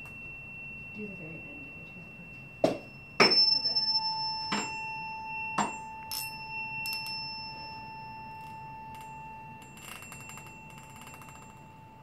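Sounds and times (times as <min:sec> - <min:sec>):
tuning fork ringing: 0:00.0 - 0:12.0
ping pong ball clicking on fork: 0:08.9 - 0:11.7.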